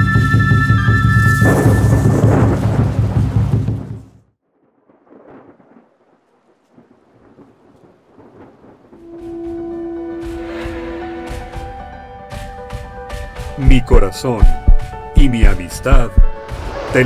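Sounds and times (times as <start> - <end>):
faint sparse crackle: 4.4 - 10.0
intro music: 9.7 - 16.7.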